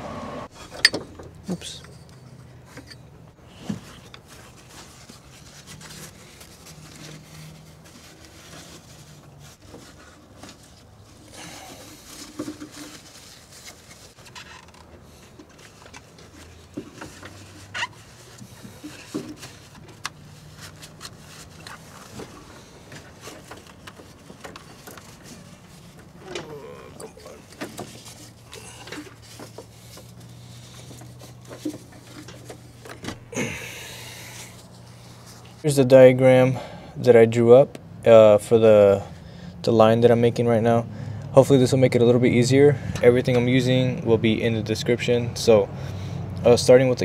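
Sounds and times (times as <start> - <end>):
paper napkins rustling: 3.5 - 32.8, 33.4 - 35.7.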